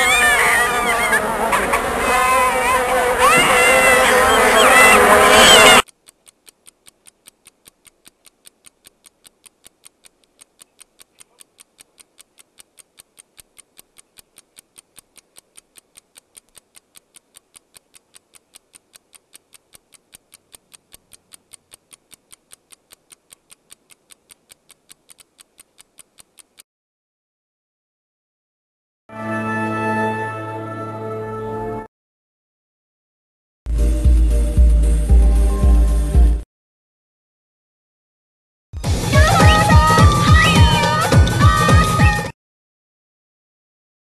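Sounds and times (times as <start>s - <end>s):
faint even ticking: 3.6s - 26.6s.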